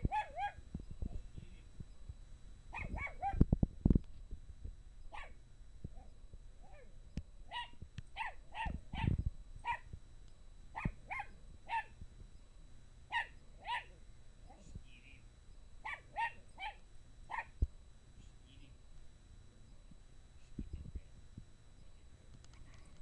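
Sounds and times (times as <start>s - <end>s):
small dog yapping: 0.0s - 0.6s, 2.7s - 3.4s, 5.1s - 5.4s, 7.5s - 9.9s, 10.8s - 11.9s, 13.1s - 14.0s, 15.8s - 17.6s.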